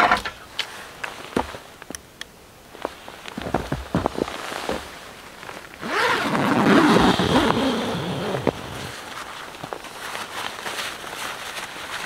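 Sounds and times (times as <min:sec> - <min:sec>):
tent fabric crinkling and rustling: 0:02.7 - 0:12.0.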